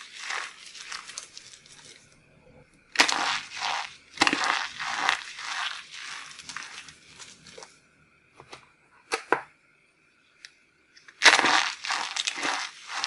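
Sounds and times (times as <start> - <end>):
dry soap crunching in hands: 0.0 - 2.0, 2.9 - 7.7, 11.1 - 13.0.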